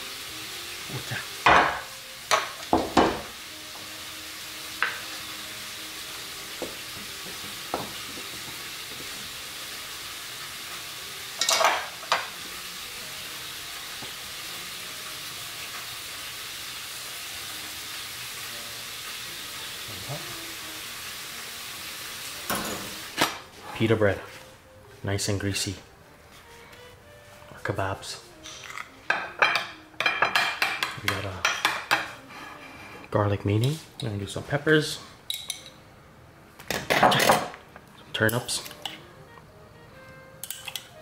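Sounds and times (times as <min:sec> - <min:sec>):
steady hiss: 0:00.0 - 0:25.8
wooden spoon knocking on pot: 0:01.5 - 0:03.3.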